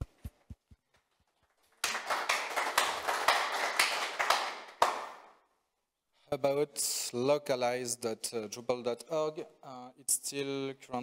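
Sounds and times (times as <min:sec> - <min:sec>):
small audience applauding: 0:01.3 - 0:05.4.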